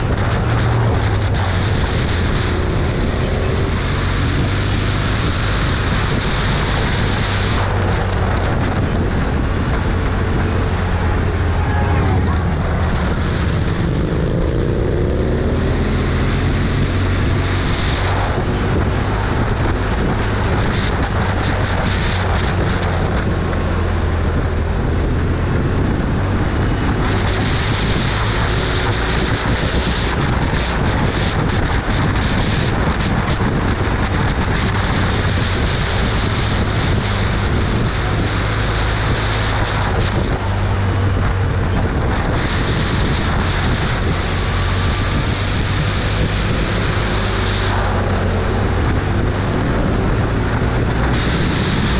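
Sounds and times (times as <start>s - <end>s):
vehicle engine drone: 0.0s - 51.9s
wind noise on microphone: 0.0s - 51.9s.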